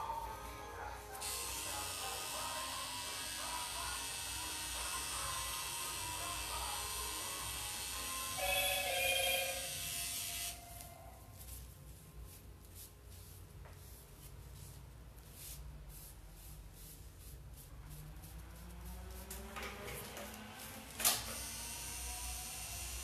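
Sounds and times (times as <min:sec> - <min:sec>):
music: 0:00.0 - 0:12.8
tattoo machine buzzing: 0:01.2 - 0:10.7, 0:21.0 - 0:23.0
gloved hands rubbing skin: 0:10.8 - 0:19.6.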